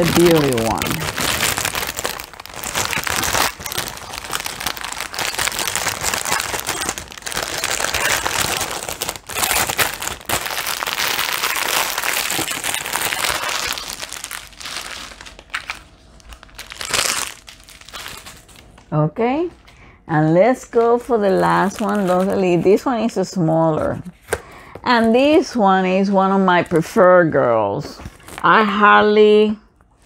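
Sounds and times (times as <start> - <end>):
plastic bag crinkling: 0.0 - 18.9, 20.7 - 22.7, 28.0 - 28.8.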